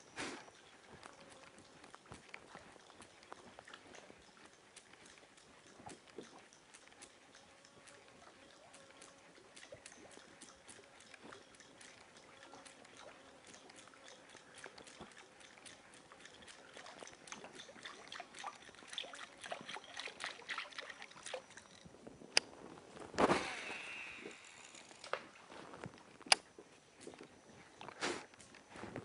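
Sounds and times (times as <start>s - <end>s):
lure splashing on water: 0.0s - 21.8s.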